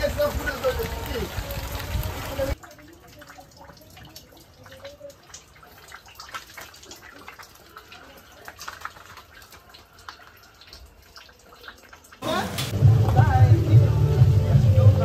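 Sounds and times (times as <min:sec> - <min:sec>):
water dripping and trickling: 0:00.0 - 0:14.6
loud music: 0:12.2 - 0:15.0.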